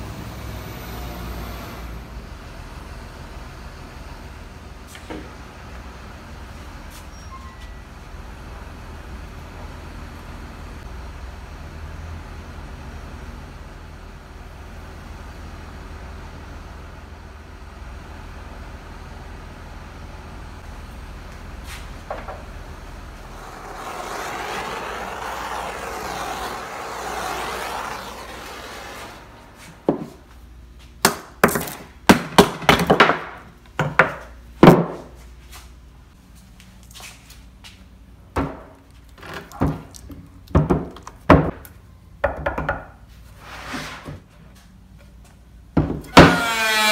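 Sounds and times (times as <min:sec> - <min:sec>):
hard objects knocking on workbench: 0:42.2 - 0:42.9.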